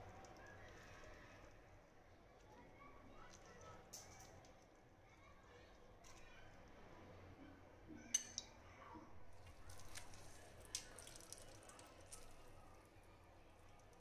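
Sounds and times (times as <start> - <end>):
juice dripping into steel bowl: 9.4 - 13.0, 13.6 - 14.0.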